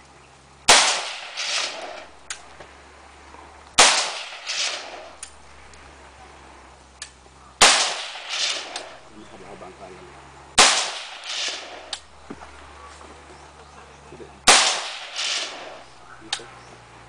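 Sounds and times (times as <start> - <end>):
rifle shots: 0.7 - 2.6, 3.8 - 5.7, 7.6 - 9.4, 10.6 - 12.8, 14.5 - 16.3.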